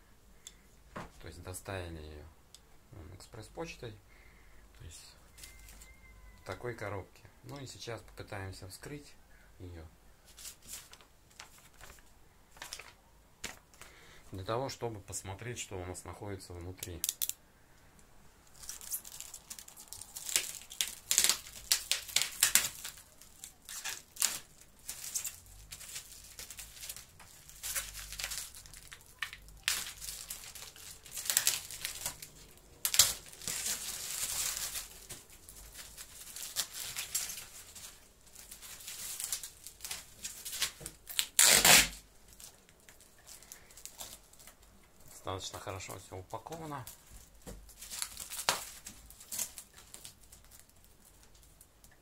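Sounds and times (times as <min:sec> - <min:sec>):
plastic crinkling: 0:05.3 - 0:06.6, 0:10.2 - 0:13.9, 0:18.4 - 0:52.0
plastic wrap and tape tearing: 0:18.4 - 0:44.7, 0:45.8 - 0:52.0.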